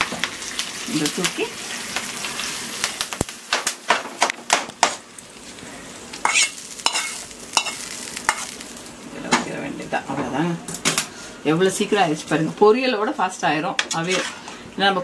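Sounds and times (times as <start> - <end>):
hot oil sizzling: 0.0 - 15.0
spatula scraping a pan: 6.2 - 8.6, 13.9 - 14.6.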